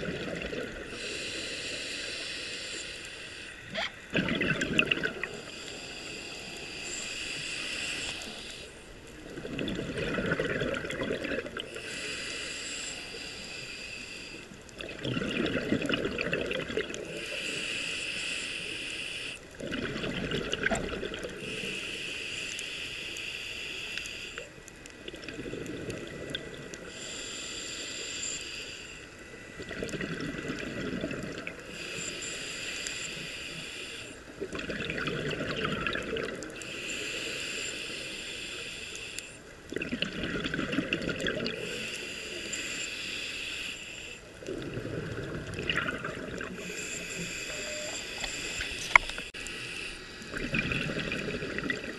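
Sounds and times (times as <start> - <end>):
exhaust bubbles rumbling: 4.1 - 5.4, 9.3 - 11.7, 14.8 - 17.0, 44.4 - 46.6.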